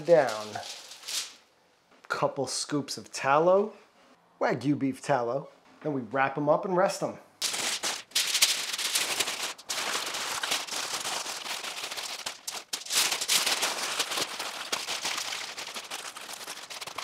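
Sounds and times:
wrapping sheet crinkling: 0:00.0 - 0:01.5, 0:07.4 - 0:17.0.

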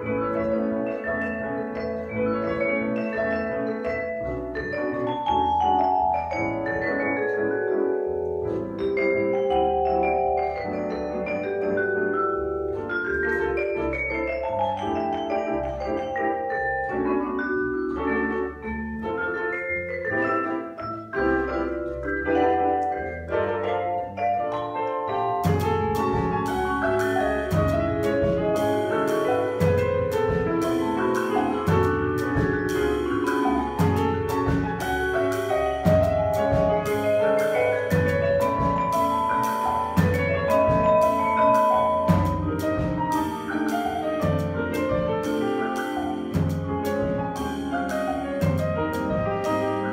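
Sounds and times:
double bass line: 0:00.0 - 0:49.9
vibraphone melody: 0:00.0 - 0:49.9
drum kit cymbals: 0:25.4 - 0:49.8.

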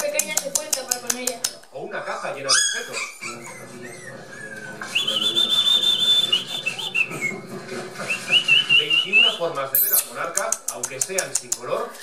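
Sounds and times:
puppies whining: 0:02.1 - 0:07.4.

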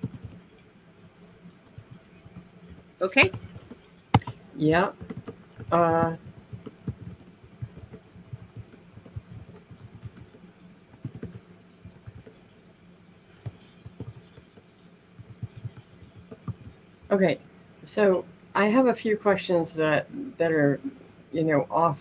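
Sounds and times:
computer keyboard typing: 0:00.0 - 0:00.4, 0:01.6 - 0:02.5, 0:03.2 - 0:12.4, 0:13.4 - 0:16.8.

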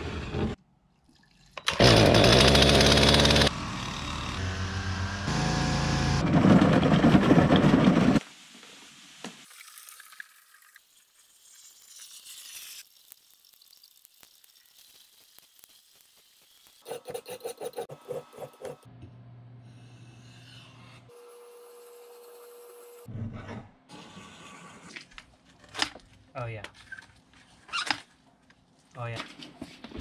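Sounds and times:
small two-stroke engine bursts: 0:01.7 - 0:06.2.

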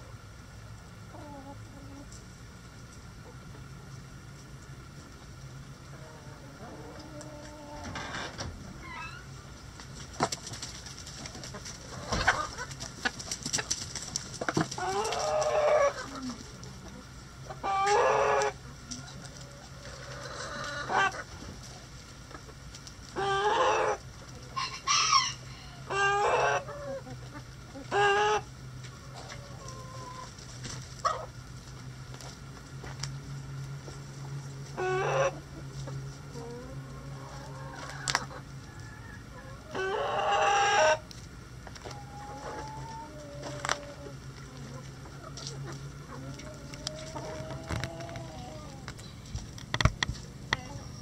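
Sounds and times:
chickens clucking: 0:00.0 - 0:51.0.

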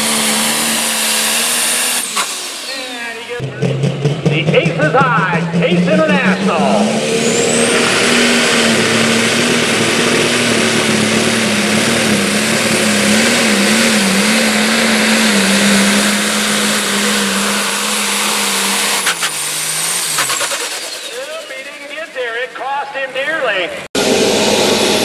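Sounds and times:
tractor diesel engine at full throttle: 0:00.0 - 0:25.0
high engine whistle: 0:05.4 - 0:22.6.

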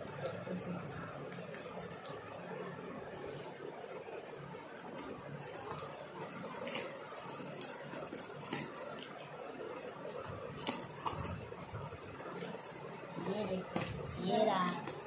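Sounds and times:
packing tape tearing: 0:05.0 - 0:09.2, 0:10.1 - 0:12.8.

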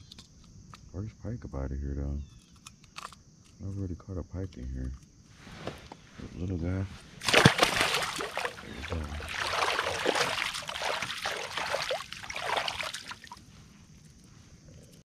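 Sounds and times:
fish splashing into water: 0:07.2 - 0:13.4
water splashing and trickling: 0:07.2 - 0:14.2.

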